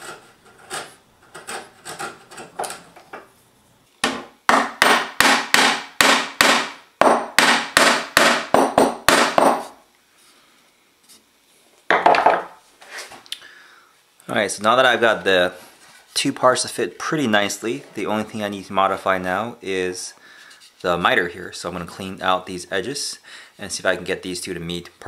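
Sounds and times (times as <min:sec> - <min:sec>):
chisel scraping bamboo: 0:00.0 - 0:02.6.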